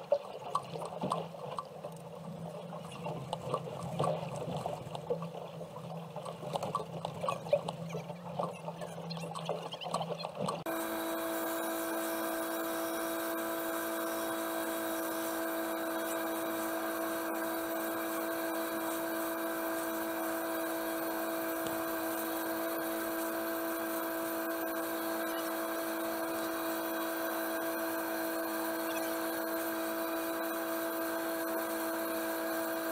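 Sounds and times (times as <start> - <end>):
boat engine droning: 0.0 - 32.9.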